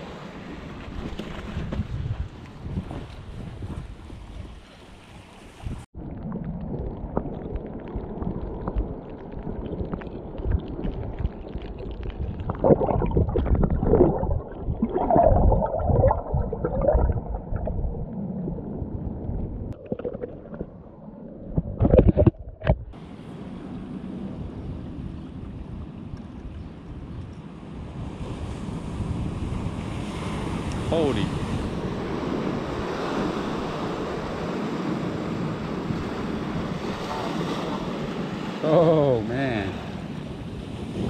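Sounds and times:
wind: 0:00.0 - 0:41.0
muffled underwater gurgling: 0:06.0 - 0:22.9
surf: 0:28.0 - 0:41.0.

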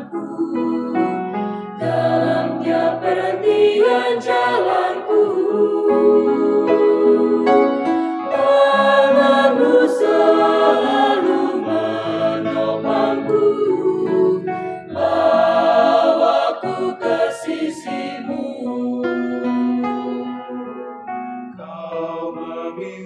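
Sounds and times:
choir singing a hymn: 0:00.0 - 0:20.8, 0:21.5 - 0:23.0.

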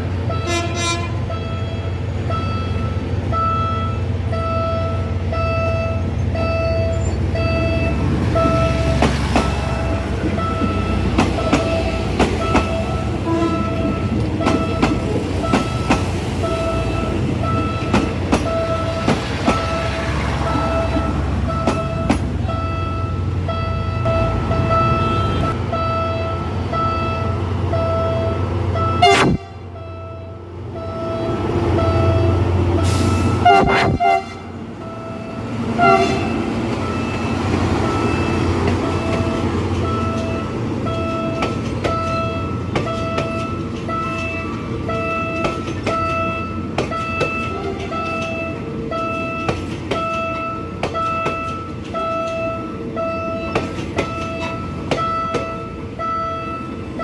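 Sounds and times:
diesel locomotive rumble: 0:00.0 - 0:57.0
level crossing warning bell: 0:00.2 - 0:33.5, 0:34.8 - 0:57.0
train wheels clattering over rails: 0:08.0 - 0:22.4, 0:36.3 - 0:52.6, 0:53.4 - 0:55.7.

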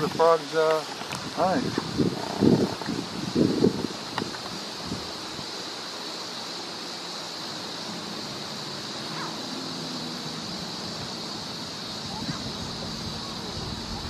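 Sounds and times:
high-pitched hiss: 0:00.0 - 0:14.0
wind-like outdoor hiss: 0:00.0 - 0:14.0.

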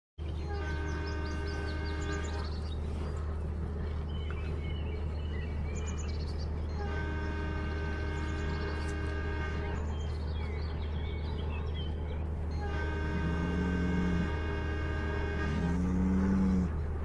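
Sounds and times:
low rumble of running train: 0:00.2 - 0:17.0
train horn blasts: 0:00.4 - 0:02.6, 0:06.7 - 0:10.1, 0:12.5 - 0:17.0.

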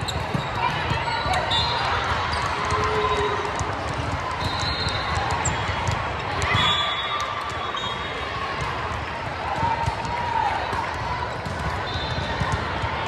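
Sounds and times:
sneakers squeaking on court: 0:00.0 - 0:03.4.

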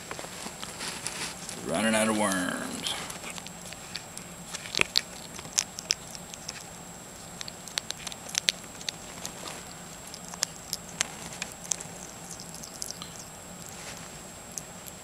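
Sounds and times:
hedgehog chewing crunchy clicks: 0:03.2 - 0:15.0.

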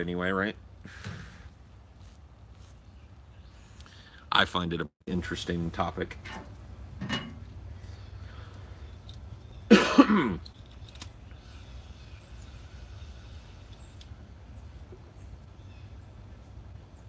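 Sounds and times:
low steady hum: 0:00.0 - 0:17.0
man clearing his throat: 0:09.7 - 0:10.4.

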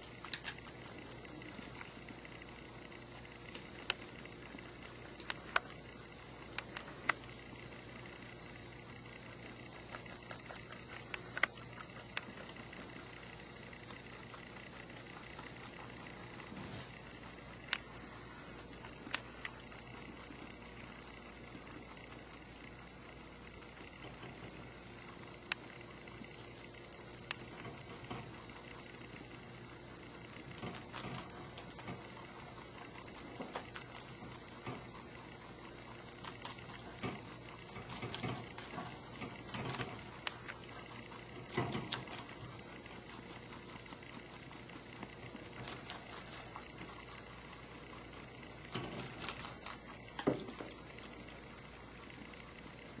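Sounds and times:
rabbits rustling in hay: 0:15.6 - 0:19.0.

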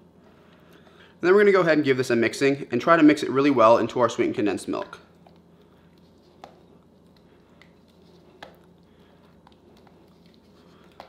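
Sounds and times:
steady low hum: 0:00.0 - 0:11.0
spatula squishing thick mixture: 0:04.4 - 0:11.0.

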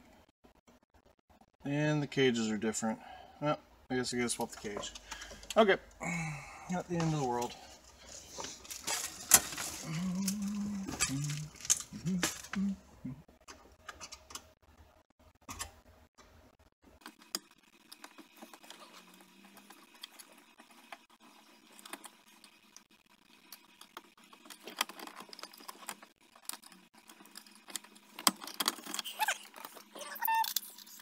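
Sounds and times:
small parts clicking and clinking: 0:08.4 - 0:12.6, 0:17.0 - 0:31.0.

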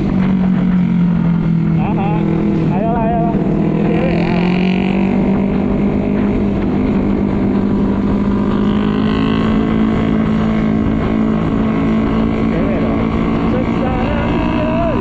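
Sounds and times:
road and wind noise: 0:00.0 - 0:15.0
scooter engine droning: 0:00.0 - 0:15.0.

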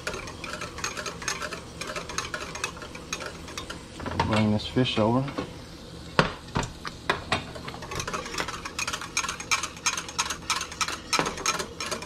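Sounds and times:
whisk scraping a saucepan: 0:00.0 - 0:03.9, 0:07.6 - 0:12.0.

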